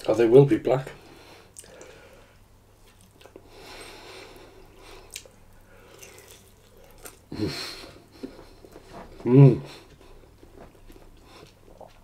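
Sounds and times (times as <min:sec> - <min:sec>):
person chewing: 0:01.5 - 0:02.0, 0:02.8 - 0:09.2, 0:09.8 - 0:12.0
wet mouth clicks and smacks: 0:01.6 - 0:01.9, 0:05.1 - 0:07.2.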